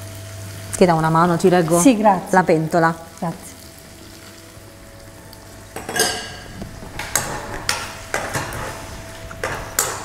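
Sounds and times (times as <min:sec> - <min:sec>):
metal spoon scraping a frying pan: 0:05.8 - 0:10.0.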